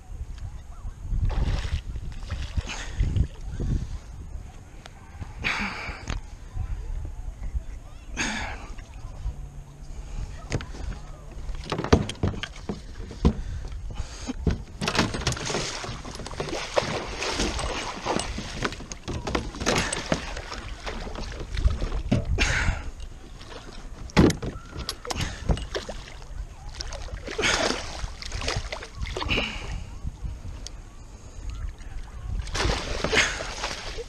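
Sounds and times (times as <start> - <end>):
fish splashing at the surface: 14.9 - 22.0, 32.5 - 34.0.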